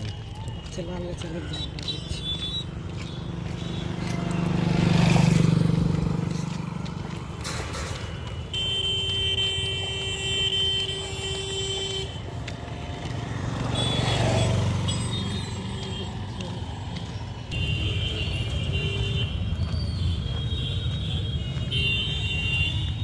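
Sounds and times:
engine approaching: 2.6 - 8.4
motorcycle passing close: 2.8 - 7.7, 12.9 - 16.3.

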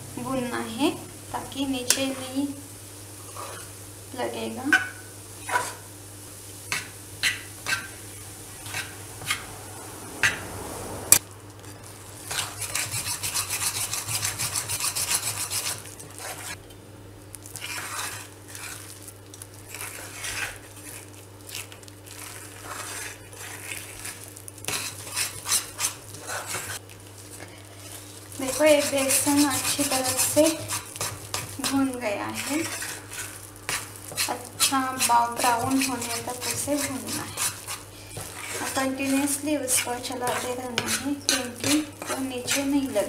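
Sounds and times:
faint hum: 0.0 - 17.7
metal spatula scraping a pan: 3.2 - 3.8, 4.7 - 5.9, 6.7 - 9.6, 11.8 - 16.6, 17.6 - 19.0, 19.7 - 21.1, 22.2 - 26.8, 27.8 - 43.0.

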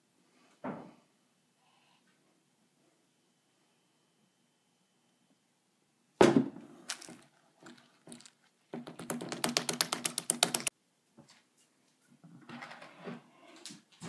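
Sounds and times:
thump: 6.2 - 6.7
hand slapping wet powder mix: 6.9 - 10.7.

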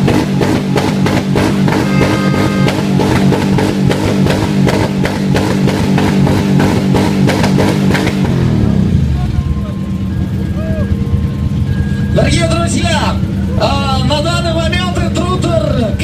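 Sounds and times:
rock music: 1.4 - 3.7.

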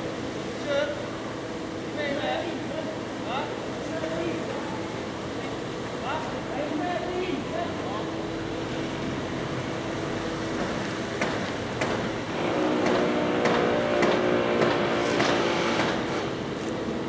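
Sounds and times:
engine running: 7.5 - 17.0
sharp knocks: 10.6 - 12.2, 12.8 - 16.2.

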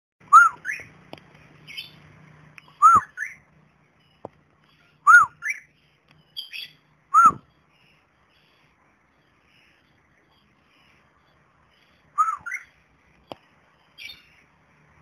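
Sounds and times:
cockatiel whistled calls: 0.2 - 0.9, 2.7 - 3.4, 5.0 - 5.7, 6.4 - 7.5, 12.1 - 12.8, 14.0 - 14.4.

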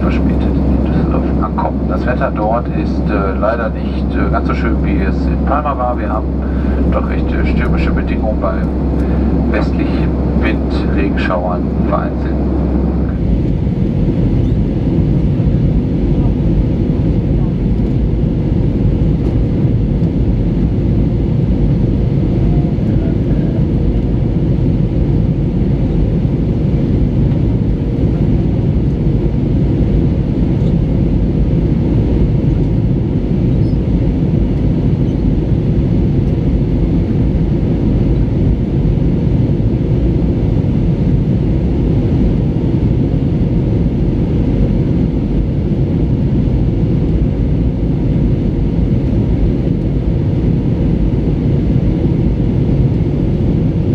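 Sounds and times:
airplane cabin rush: 0.0 - 20.8
faint steady hum: 0.0 - 53.9.

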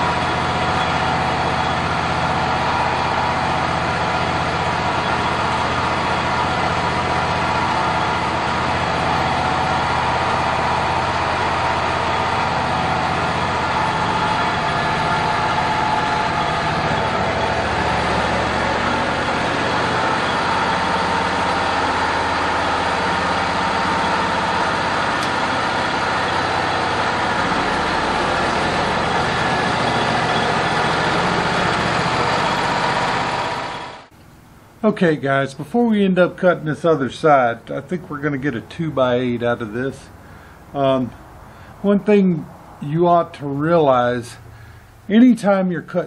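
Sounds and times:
band sawmill sawing wood: 0.0 - 34.1.

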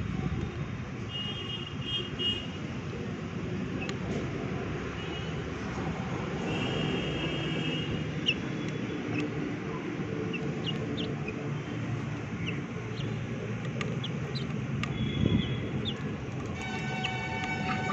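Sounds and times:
chickens chirping: 8.2 - 17.9.

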